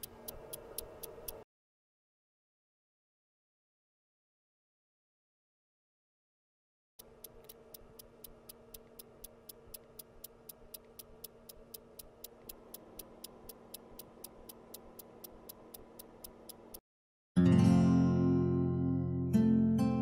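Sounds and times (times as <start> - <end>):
clock ticking: 0.0 - 1.4, 7.0 - 16.8
faint hum: 0.0 - 1.4, 7.0 - 16.8.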